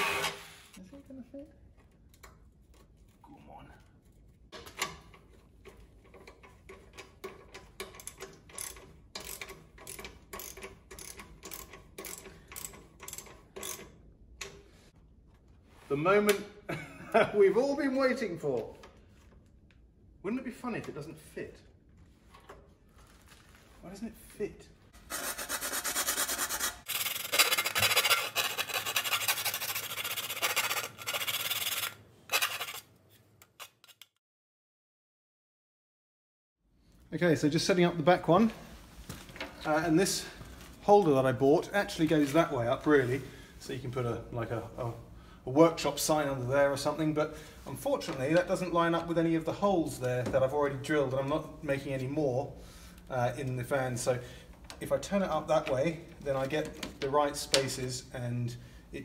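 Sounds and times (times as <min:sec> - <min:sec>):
harsh rubbing and rasping: 0:25.0 - 0:34.1.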